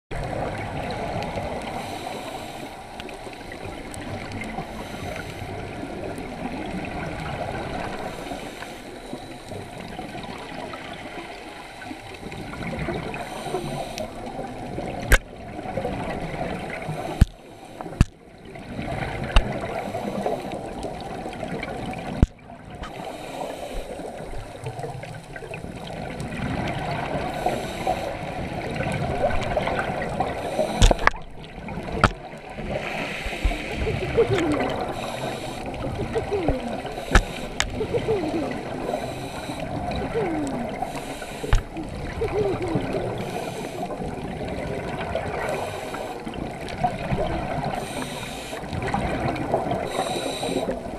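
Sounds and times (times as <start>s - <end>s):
diver breathing through regulator: 1.6s - 3.8s, 4.6s - 5.7s, 7.9s - 9.7s, 13.0s - 14.4s, 16.8s - 18.1s, 19.6s - 20.7s, 22.9s - 24.3s, 27.2s - 28.4s, 30.2s - 31.3s, 32.6s - 44.2s, 45.4s - 46.4s, 47.6s - 48.7s, 49.7s - 50.9s
sharp clicks or knocks: 30.8s - 31.2s.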